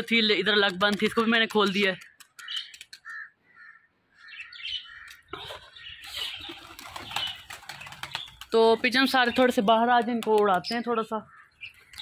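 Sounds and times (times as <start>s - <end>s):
birds chirping: 0.0s - 12.0s
pigeon wings flapping: 0.4s - 3.1s, 6.4s - 8.9s, 9.6s - 10.7s
sharp wing claps: 0.5s - 3.1s, 9.9s - 10.8s.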